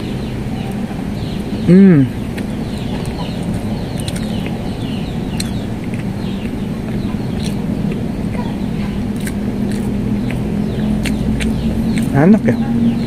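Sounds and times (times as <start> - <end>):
birds chirping: 0.0 - 13.0
steady low hum: 0.0 - 13.0
chewing soft cake: 2.0 - 12.7
wet mouth clicks: 3.9 - 4.6, 5.3 - 12.2.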